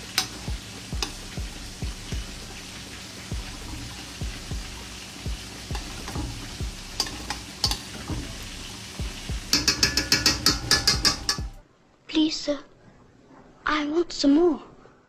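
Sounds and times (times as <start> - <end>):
knocks and clicks: 9.3 - 11.6
spoon scraping metal pot: 9.5 - 11.6.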